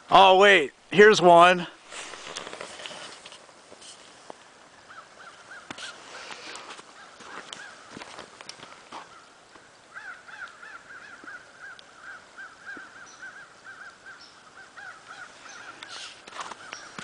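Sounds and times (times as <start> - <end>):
footsteps: 5.7 - 9.1, 15.9 - 17.0.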